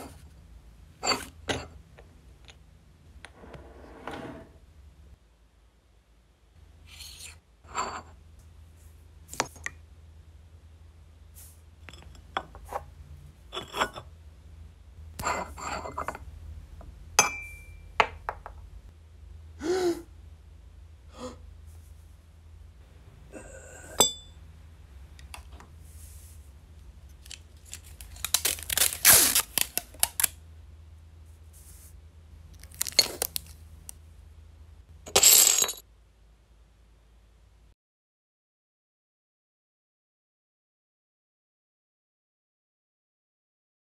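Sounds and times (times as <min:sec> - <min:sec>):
china saucer smashing: 0:35.1 - 0:35.8.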